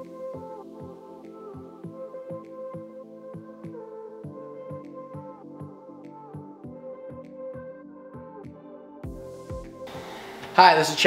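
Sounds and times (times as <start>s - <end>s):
music with held chords and beat: 0.0s - 10.6s.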